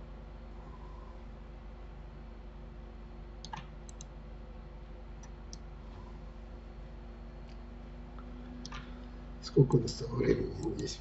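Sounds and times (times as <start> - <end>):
low hum: 0.0 - 11.0
computer mouse clicks: 3.4 - 4.2, 5.2 - 5.6.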